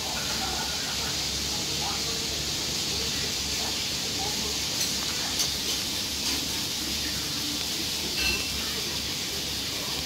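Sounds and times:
steady hiss: 0:00.0 - 0:10.0
tableware clinking: 0:08.1 - 0:08.7.

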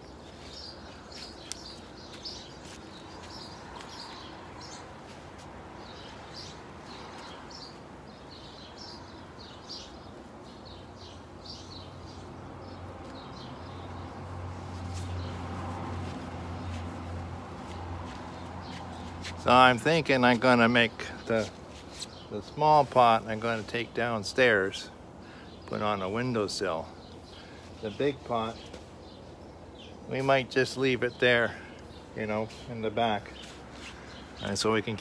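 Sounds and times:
small birds chirping: 0:00.0 - 0:35.0.

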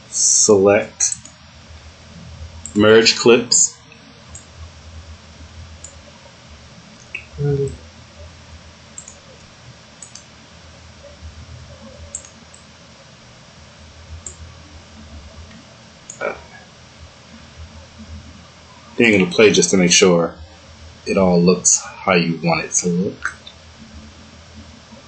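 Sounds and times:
steady low hum: 0:00.0 - 0:25.0
computer mouse clicking: 0:01.1 - 0:01.4, 0:09.0 - 0:09.2, 0:10.0 - 0:10.3, 0:12.1 - 0:12.7.

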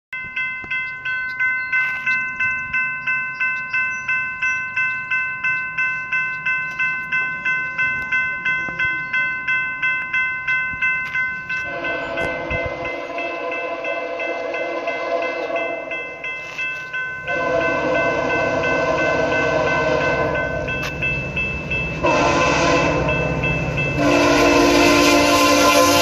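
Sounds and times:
crossing warning bell ringing: 0:00.1 - 0:26.0
train horn: 0:11.6 - 0:16.0, 0:17.2 - 0:20.7, 0:22.0 - 0:26.0.

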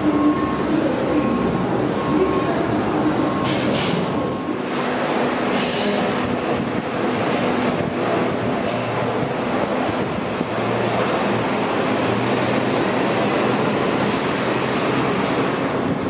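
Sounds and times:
train wheels rumbling on rail: 0:02.6 - 0:16.0.

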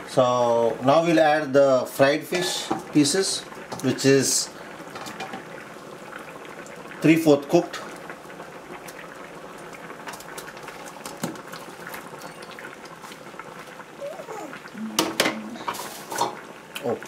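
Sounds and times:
curry bubbling in a pan: 0:00.6 - 0:17.0.

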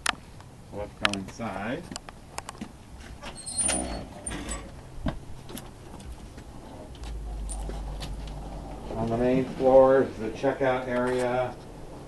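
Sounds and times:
door squeak: 0:03.2 - 0:04.8
footsteps: 0:04.4 - 0:10.2.

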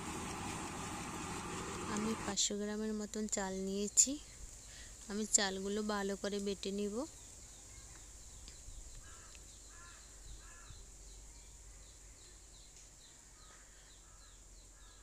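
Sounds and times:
distant crows cawing: 0:09.0 - 0:10.8.

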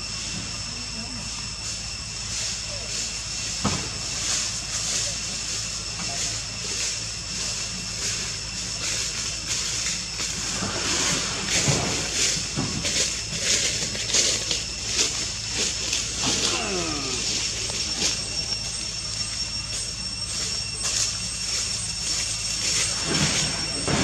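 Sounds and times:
steady high-pitched drone: 0:00.0 - 0:24.0
falling whine-like call: 0:04.3 - 0:24.0.

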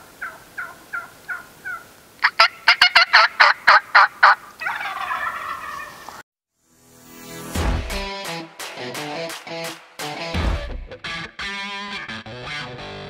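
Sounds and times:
wild turkey calling: 0:00.0 - 0:06.2.

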